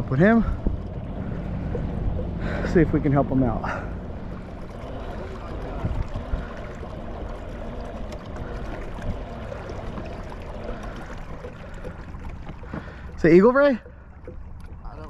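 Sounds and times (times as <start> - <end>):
steady low rumble: 0.0 - 15.0
water swishing along hull: 0.0 - 15.0.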